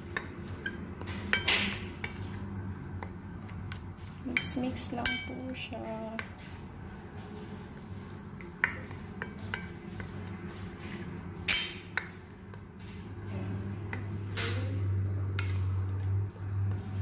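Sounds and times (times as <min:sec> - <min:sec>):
utensil clinking against mixing bowl: 0:03.0 - 0:06.4, 0:08.0 - 0:10.6, 0:11.4 - 0:12.6.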